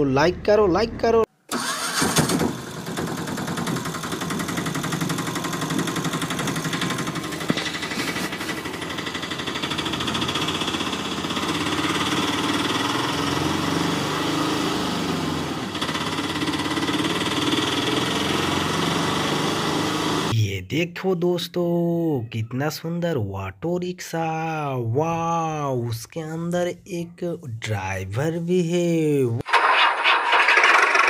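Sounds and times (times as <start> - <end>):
small engine idling: 1.5 - 20.3, 30.3 - 31.0.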